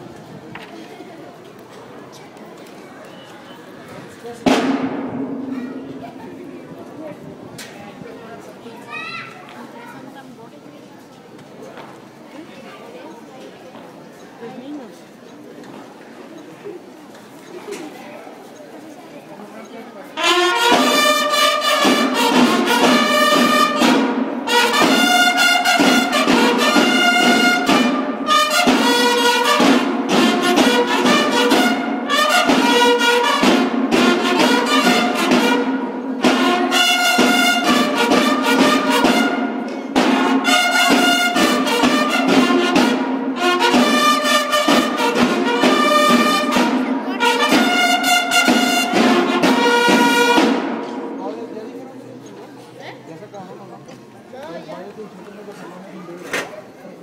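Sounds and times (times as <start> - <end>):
steady drumming: 4.4 - 6.6, 20.2 - 51.2.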